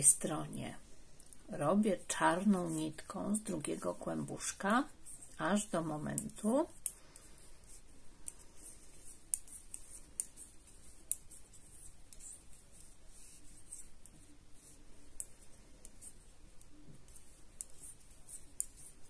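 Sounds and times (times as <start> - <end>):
knitting needles clicking: 5.0 - 19.0.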